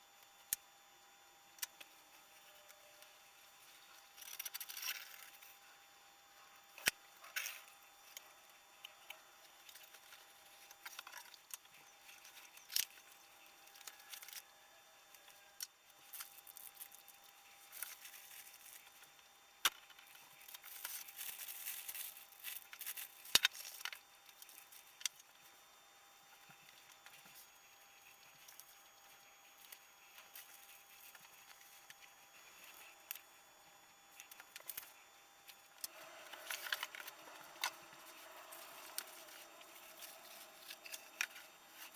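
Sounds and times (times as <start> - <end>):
plastic bag crinkling: 16.0 - 19.0, 20.2 - 23.8, 35.8 - 41.9
cardboard and plastic rustling: 16.0 - 25.2, 35.8 - 41.9.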